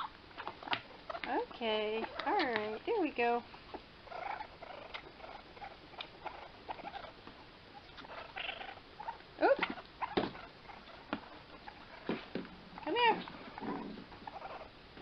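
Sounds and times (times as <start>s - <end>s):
baby raccoons crying: 4.0s - 14.8s.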